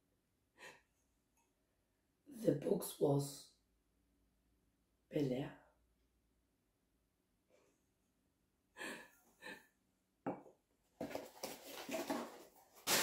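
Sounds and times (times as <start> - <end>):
cardboard and paper rustling: 11.0 - 13.0.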